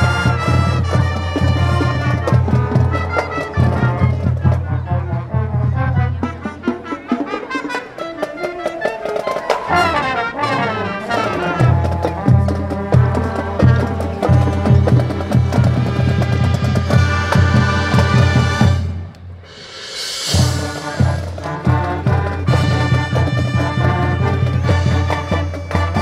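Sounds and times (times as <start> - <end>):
brass trumpets and trombones: 0.0 - 26.0
drumline: 0.0 - 26.0.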